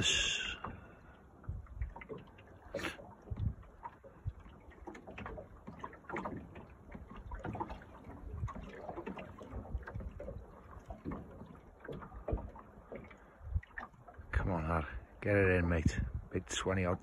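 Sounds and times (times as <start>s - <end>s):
small waves lapping: 0.0s - 17.0s
wind buffeting microphone: 1.4s - 2.1s, 3.2s - 4.6s, 8.1s - 11.2s, 13.4s - 17.0s.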